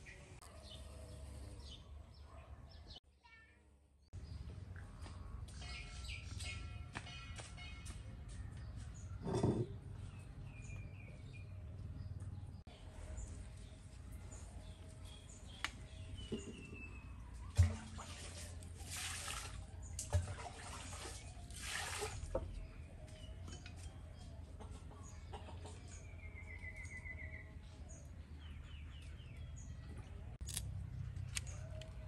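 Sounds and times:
birds chirping and trilling: 0:00.0 - 0:03.0, 0:04.1 - 0:17.6
water pouring into a clay basin: 0:17.6 - 0:22.6.

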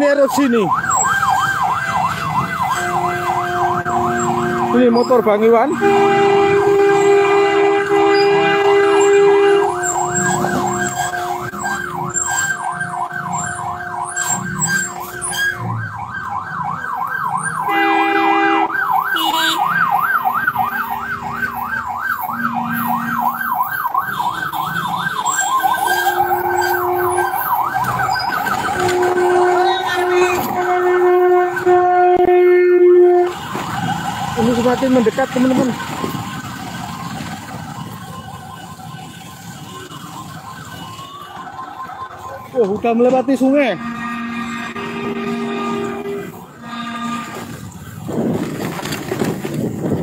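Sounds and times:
siren yelping: 0:00.0 - 0:48.2
two-note horn: 0:43.8 - 0:47.5.

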